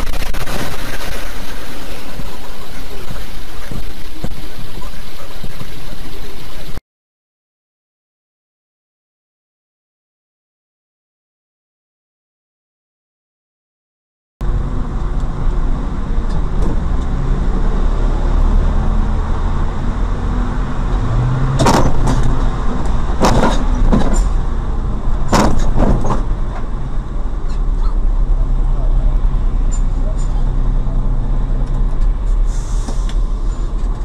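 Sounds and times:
engine running with low rumble: 0:14.4 - 0:34.0
sharp knocks: 0:21.6 - 0:22.4, 0:23.2 - 0:24.4, 0:25.3 - 0:26.3.

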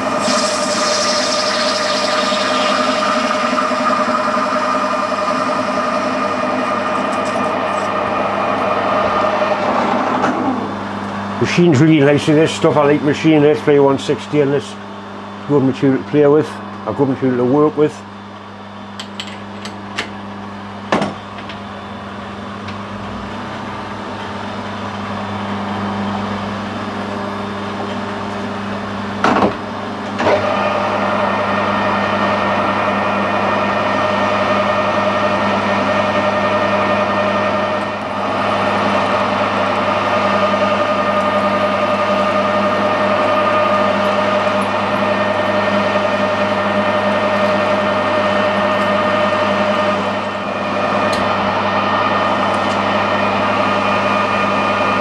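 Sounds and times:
metal lathe humming: 0:00.0 - 0:11.7, 0:30.4 - 0:55.0
gear whine: 0:00.0 - 0:12.6, 0:30.2 - 0:55.0.

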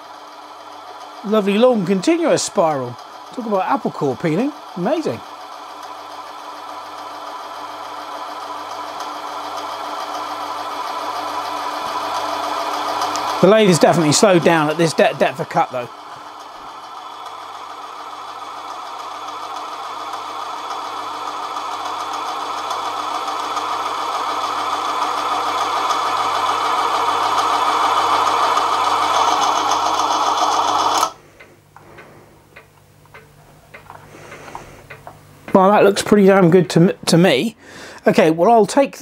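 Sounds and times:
lathe cutting metal: 0:00.0 - 0:31.2.

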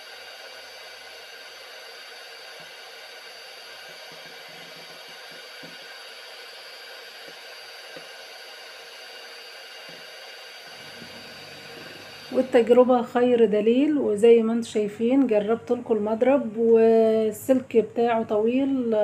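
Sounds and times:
electric hand mixer whirring: 0:00.0 - 0:12.9.

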